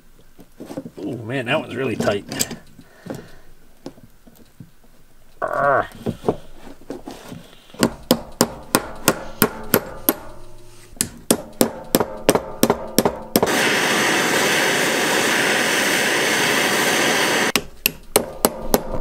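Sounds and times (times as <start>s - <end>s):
propane torch hissing: 13.4s - 17.6s.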